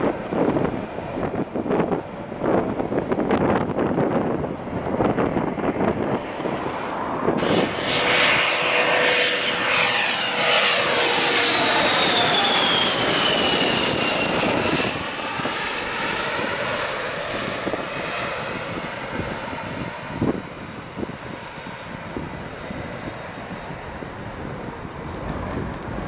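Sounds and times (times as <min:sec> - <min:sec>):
jet passing overhead: 0:00.0 - 0:26.0
turbofan whine falling in pitch: 0:01.2 - 0:21.2.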